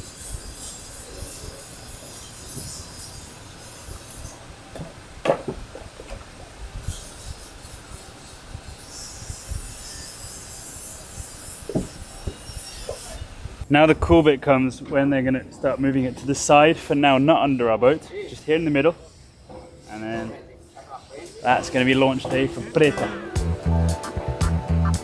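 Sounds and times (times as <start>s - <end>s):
wind buffeting microphone: 3.9s - 15.9s
wooden timbers knocking: 4.7s - 6.3s, 11.7s - 12.4s.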